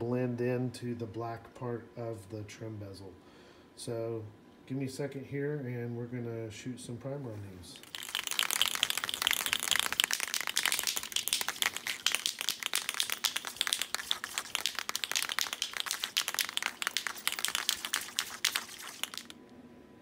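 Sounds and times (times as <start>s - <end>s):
spray can rattling when shaken: 7.8s - 19.4s.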